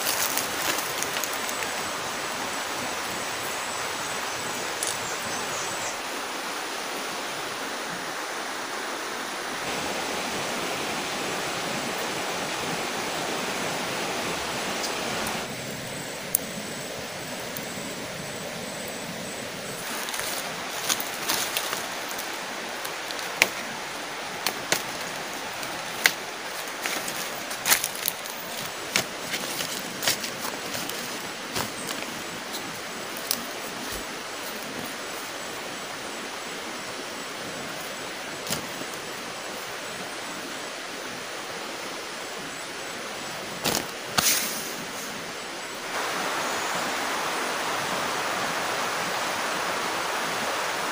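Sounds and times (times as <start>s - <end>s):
stems snapping: 0.0s - 1.7s, 19.9s - 23.7s, 24.4s - 34.1s, 38.4s - 39.0s, 43.6s - 44.5s
leaves rustling: 0.0s - 50.9s
rushing outdoor background noise: 0.0s - 50.9s
steady hiss: 0.0s - 50.9s.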